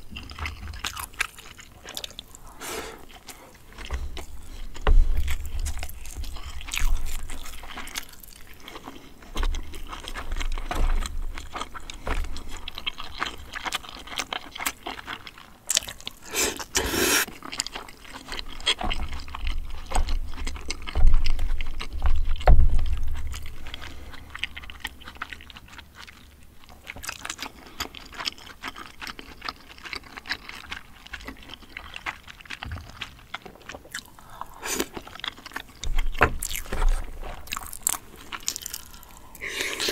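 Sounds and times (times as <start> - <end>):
chewing: 0.0 - 39.9.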